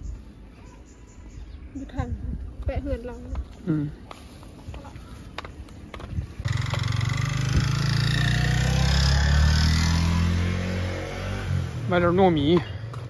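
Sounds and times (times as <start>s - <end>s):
motorbike engine running: 5.9s - 9.8s.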